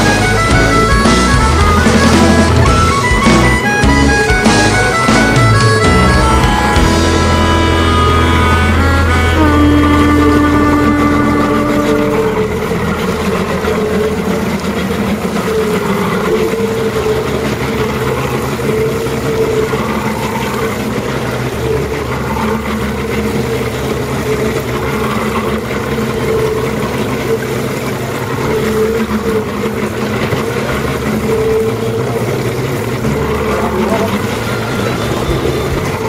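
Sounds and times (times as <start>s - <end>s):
boat motor running: 0.0s - 36.0s
water noise: 0.0s - 36.0s
wind: 0.0s - 36.0s.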